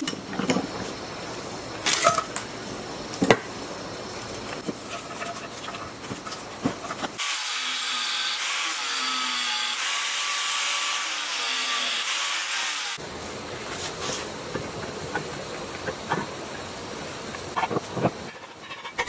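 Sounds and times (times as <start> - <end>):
angle grinder cutting metal: 7.2 - 13.0.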